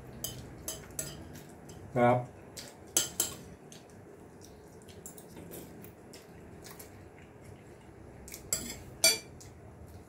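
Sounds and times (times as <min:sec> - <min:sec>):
cutlery and dishes clinking: 0:00.2 - 0:01.8, 0:08.5 - 0:09.3.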